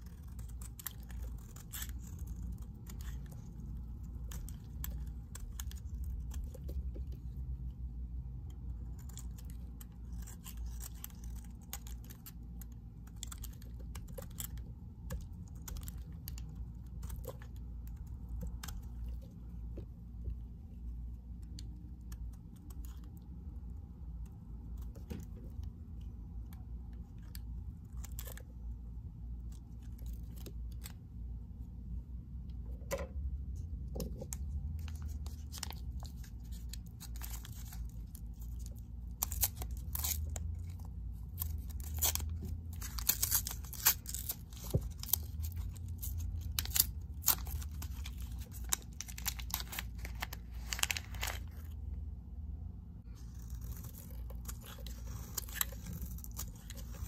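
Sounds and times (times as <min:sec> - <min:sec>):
knife scraping soap: 0:00.0 - 0:07.2, 0:08.8 - 0:19.2
low steady rumble: 0:00.0 - 0:57.0.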